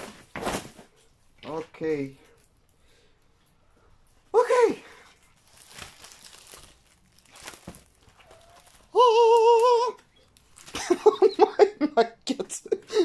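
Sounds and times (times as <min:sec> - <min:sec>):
canvas crinkling: 0:05.2 - 0:11.0
laughter: 0:10.7 - 0:13.0.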